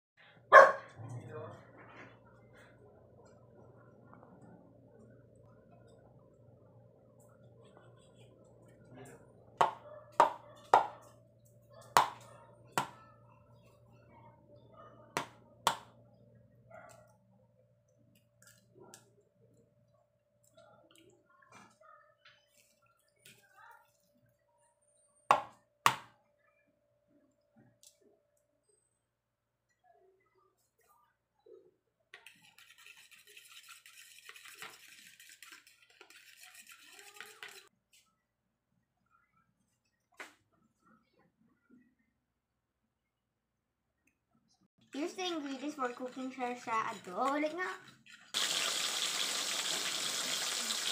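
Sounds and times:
fork beating eggs in a bowl: 32.2 - 37.7.

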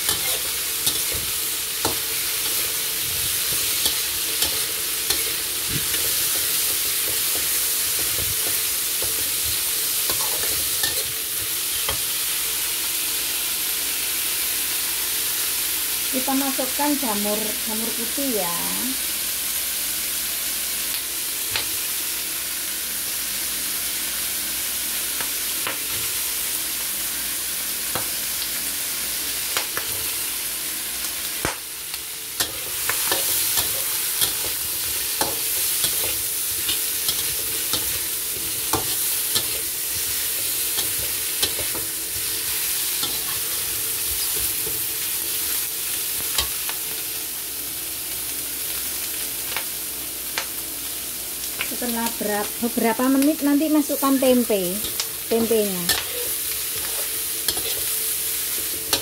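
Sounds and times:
vegetables sizzling in a wok: 0.0 - 59.0
spatula scraping a pan: 32.4 - 44.9, 54.8 - 59.0.

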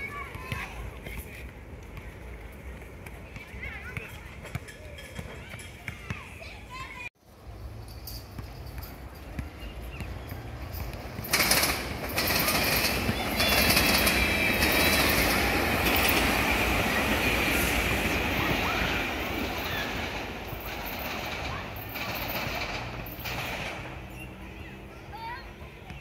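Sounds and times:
train wheels rushing on rail: 10.3 - 24.5.

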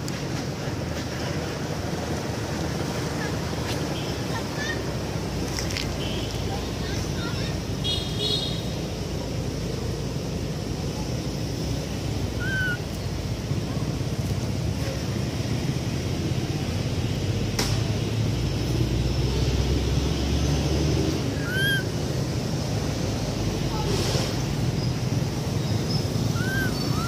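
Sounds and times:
chirping calls: 12.2 - 13.2, 21.2 - 22.0, 24.8 - 27.0.

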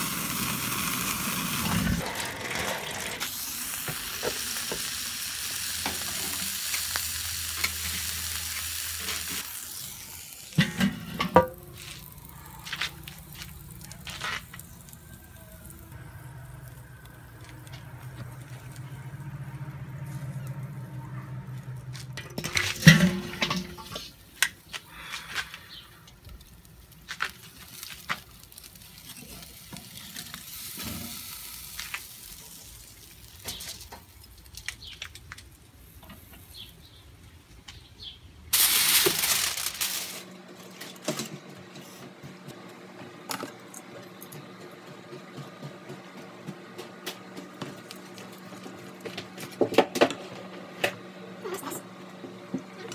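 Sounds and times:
meat sizzling on grill: 0.0 - 22.0, 26.4 - 37.0, 38.5 - 40.3
loud hissing burst: 3.2 - 10.6, 38.5 - 40.2.

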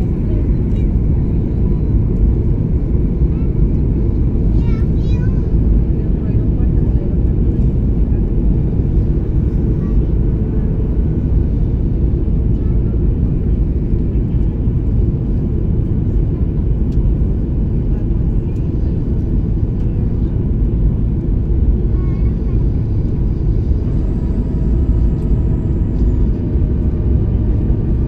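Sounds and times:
aircraft cabin engine rumble: 0.0 - 28.0.

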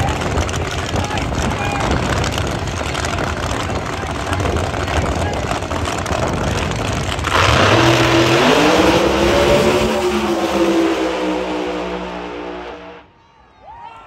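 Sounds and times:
drag car engines rumbling: 0.0 - 13.1
engines accelerating at full throttle: 5.4 - 13.1.

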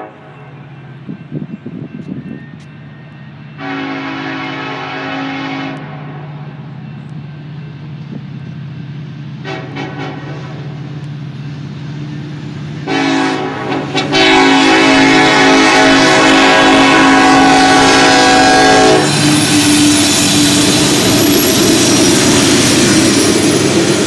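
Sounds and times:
locomotive air horn blasts: 0.0 - 0.3, 3.6 - 6.3, 9.4 - 10.6, 12.8 - 19.6.

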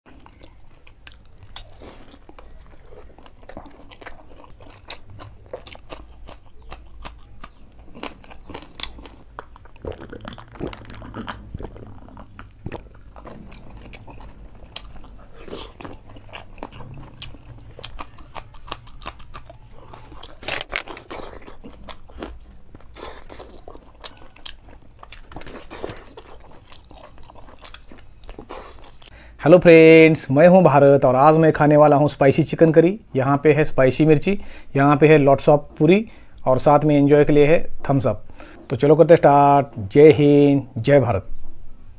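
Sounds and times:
man chewing food: 0.1 - 29.3.

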